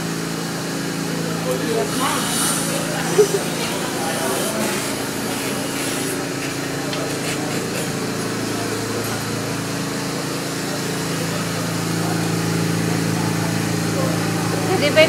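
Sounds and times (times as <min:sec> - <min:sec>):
electric motor humming: 0:01.0 - 0:09.6.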